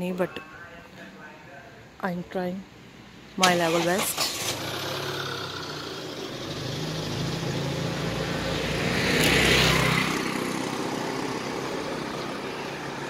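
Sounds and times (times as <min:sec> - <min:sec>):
vehicle engine humming: 0:02.9 - 0:13.0.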